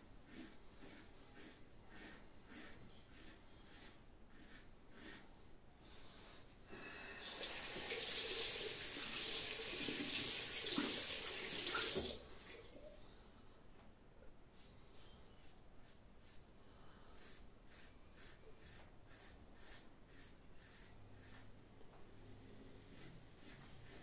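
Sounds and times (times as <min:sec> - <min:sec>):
razor strokes on stubble: 0:00.3 - 0:05.3
tap running into sink: 0:07.4 - 0:12.2.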